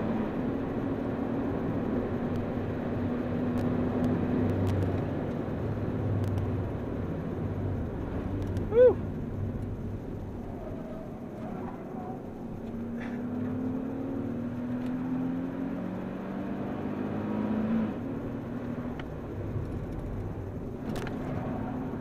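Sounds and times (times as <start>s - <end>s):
tyre and road noise: 0.0s - 22.0s.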